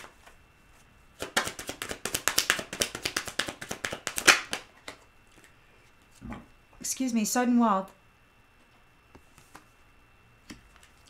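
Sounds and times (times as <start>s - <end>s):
loud card slap: 1.2s - 4.7s
cards shuffled by hand: 1.2s - 5.5s.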